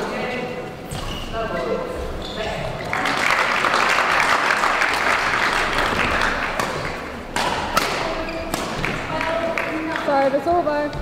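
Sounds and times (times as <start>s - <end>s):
racket hitting shuttlecock: 5.8s - 9.2s.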